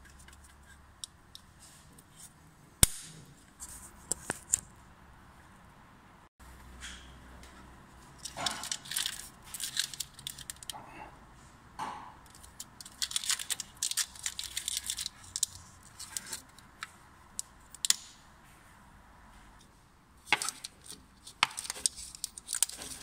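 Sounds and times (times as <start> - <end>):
rustling: 20.2 - 23.0.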